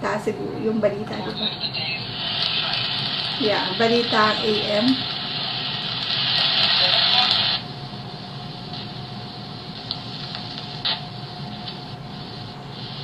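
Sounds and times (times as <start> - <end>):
radio static hiss: 0.0 - 13.0.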